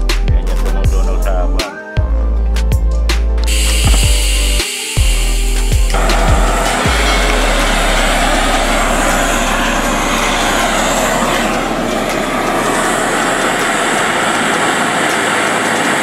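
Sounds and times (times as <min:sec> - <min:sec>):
torch flame hissing: 0:03.5 - 0:16.0.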